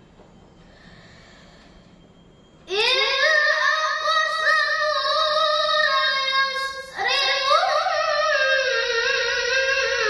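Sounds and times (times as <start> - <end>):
quick breath: 0.6 - 2.0
boy reciting melodically: 2.7 - 10.0.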